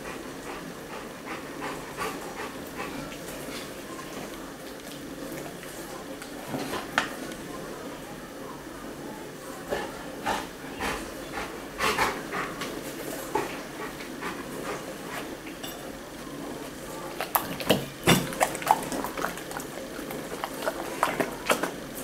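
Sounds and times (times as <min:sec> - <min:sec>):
dog chewing with wet smacks: 0:16.6 - 0:22.0.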